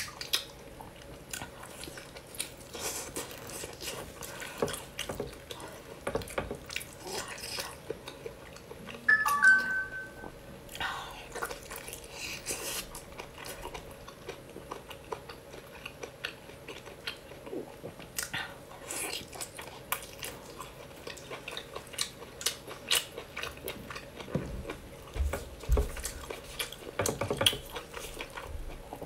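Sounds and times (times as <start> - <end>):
biting and chewing: 11.3 - 29.0.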